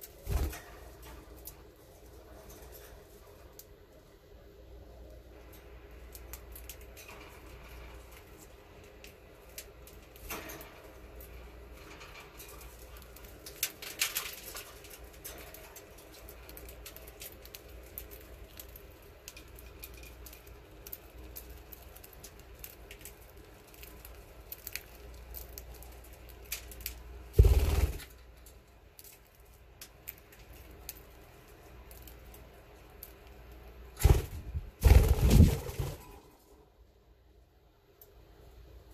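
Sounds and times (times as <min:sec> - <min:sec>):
bird wing flapping: 0:00.2 - 0:00.8, 0:27.4 - 0:28.1, 0:34.0 - 0:36.2.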